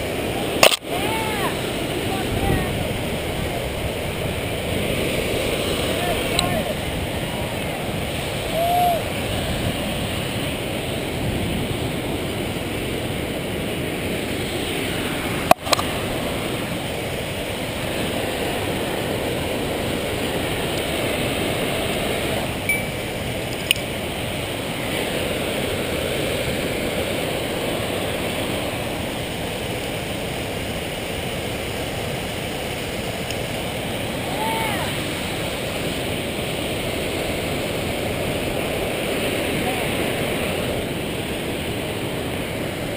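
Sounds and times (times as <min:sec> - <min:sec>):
rushing outdoor noise: 0:00.0 - 0:42.9.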